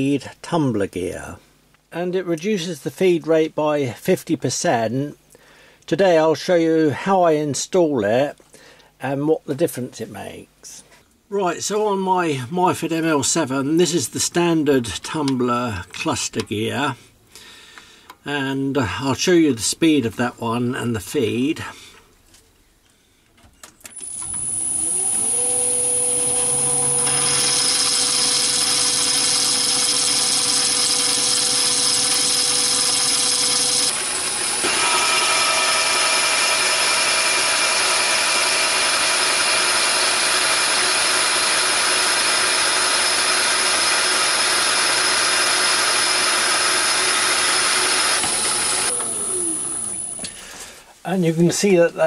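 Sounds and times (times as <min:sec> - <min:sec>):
lathe running: 0:23.9 - 0:50.4.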